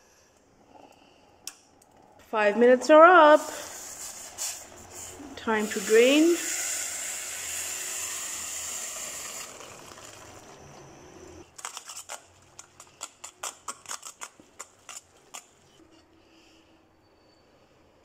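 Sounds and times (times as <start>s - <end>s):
hot water pouring into colander: 5.6s - 10.7s.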